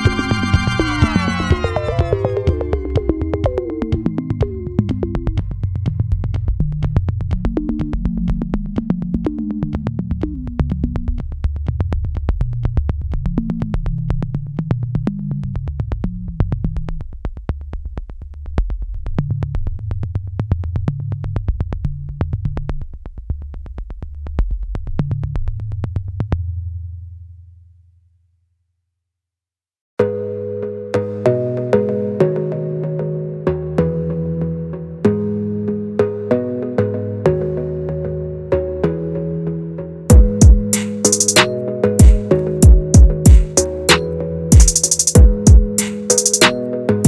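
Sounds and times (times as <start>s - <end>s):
clicking beat: 0.0s - 10.6s, 40.1s - 47.0s
synthesizer bass line: 0.0s - 11.2s, 30.0s - 47.0s.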